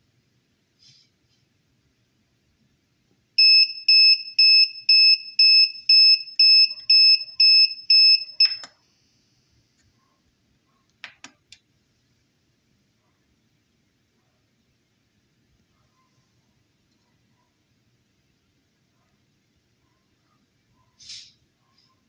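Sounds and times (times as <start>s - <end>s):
high buzzer beeps: 3.4s - 8.6s
clicks: 8.4s - 8.8s.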